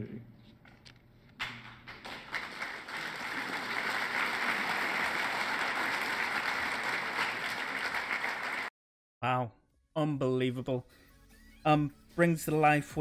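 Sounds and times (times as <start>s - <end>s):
audience applauding: 1.4s - 8.7s.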